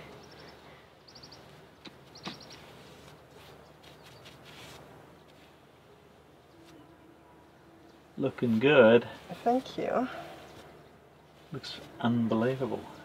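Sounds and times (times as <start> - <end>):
bird chirps: 0.0 - 4.3
paintbrush swishing: 2.3 - 5.8.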